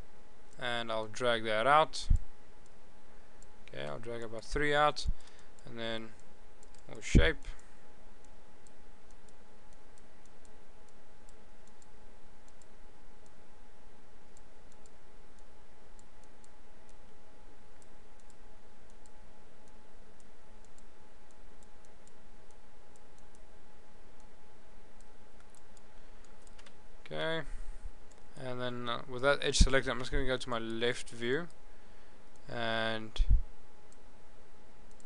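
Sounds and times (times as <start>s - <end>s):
faint steady whine: 0.0s - 35.0s
computer mouse clicking: 6.2s - 7.6s, 8.2s - 11.9s, 12.5s - 13.4s, 14.3s - 17.0s, 17.8s - 23.4s, 25.0s - 26.8s.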